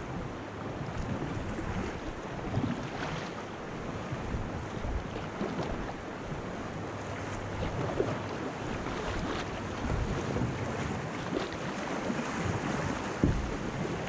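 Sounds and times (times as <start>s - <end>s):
kayak paddle splashing: 0.0s - 14.0s
wind buffeting microphone: 3.8s - 14.0s.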